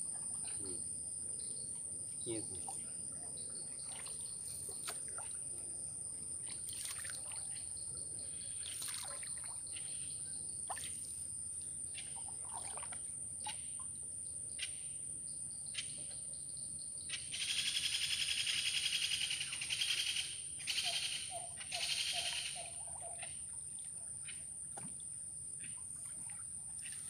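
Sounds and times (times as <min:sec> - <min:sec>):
canoe knocks and splashes: 0:03.8 - 0:05.5, 0:06.5 - 0:07.5, 0:24.6 - 0:25.2
water dripping off paddle: 0:06.4 - 0:07.6, 0:08.6 - 0:09.7.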